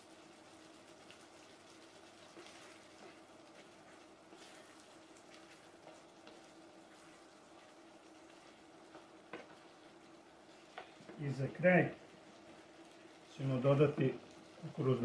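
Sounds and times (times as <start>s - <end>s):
sauce bubbling: 0.0s - 15.0s
wooden spoon scraping a pan: 0.9s - 11.2s.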